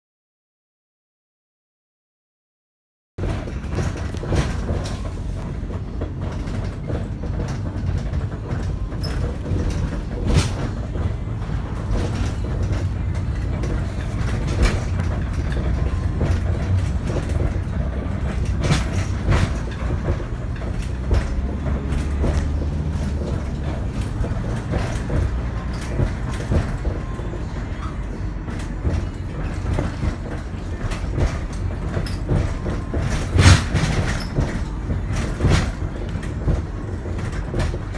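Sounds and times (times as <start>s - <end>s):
knocks and rattles: 3.2s - 37.9s
vehicle rumble inside cabin: 3.2s - 37.9s.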